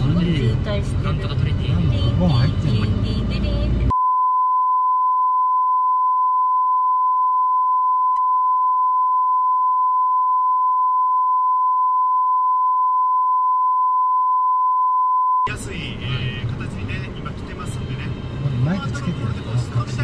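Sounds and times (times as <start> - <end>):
censor bleep tone: 3.9 - 15.5.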